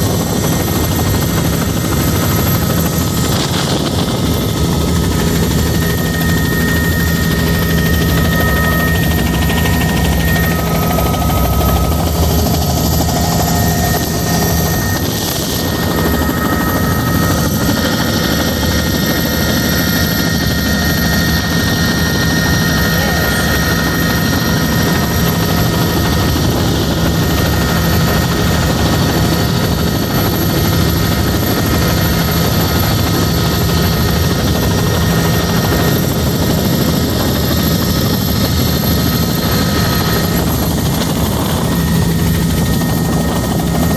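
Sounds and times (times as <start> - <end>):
helicopter engine and rotor drone: 0.0 - 43.9
whining tones: 0.5 - 24.6.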